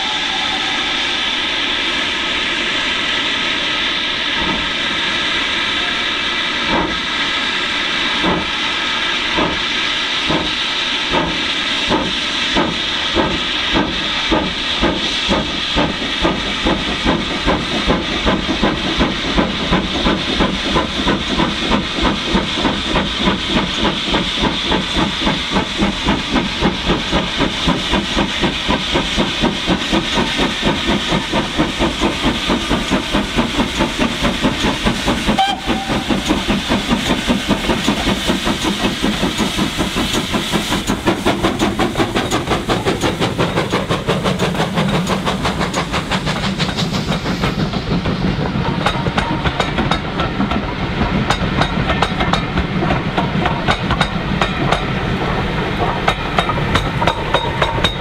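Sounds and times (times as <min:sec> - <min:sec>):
steam hissing: 0:00.0 - 0:58.0
steam locomotive exhaust beats: 0:00.0 - 0:58.0.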